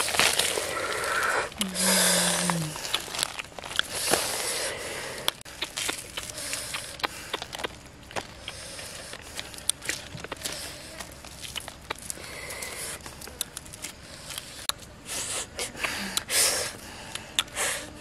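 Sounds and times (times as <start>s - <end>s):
roast chicken crust crackling: 0.0s - 1.6s, 2.4s - 4.4s, 5.2s - 14.9s
leaf crinkling: 0.0s - 14.9s.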